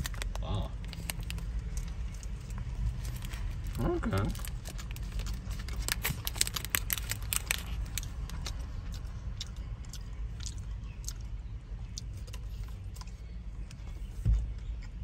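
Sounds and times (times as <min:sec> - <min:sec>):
person chewing crunchy food: 0:00.0 - 0:13.7.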